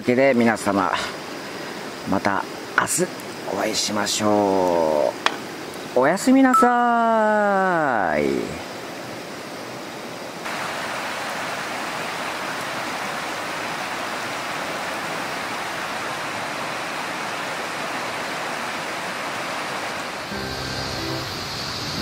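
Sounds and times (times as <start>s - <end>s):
river rushing: 0.0s - 7.0s, 7.6s - 22.0s.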